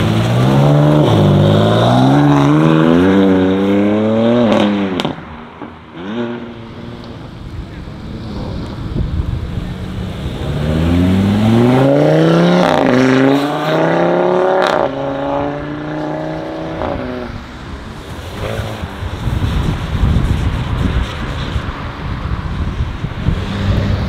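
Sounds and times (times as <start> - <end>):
car engine accelerating hard: 6.0 - 17.4.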